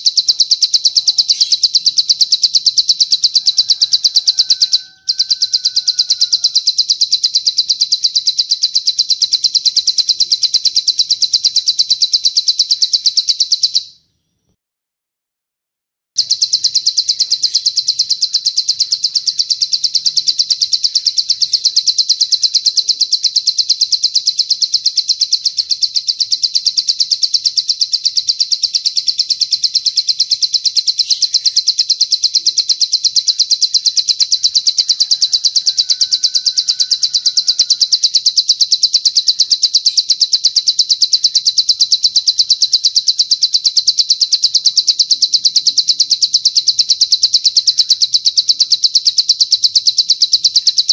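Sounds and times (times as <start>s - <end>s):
rapid high-pitched bird trill: 0.0s - 14.6s, 16.2s - 50.9s.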